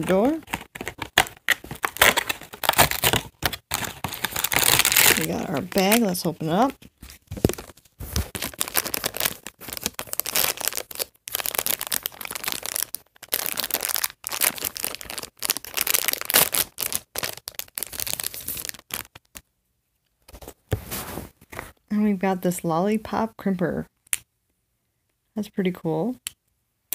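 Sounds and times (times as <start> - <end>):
plastic bag tearing and crinkling: 0.0 - 6.7, 7.4 - 19.4.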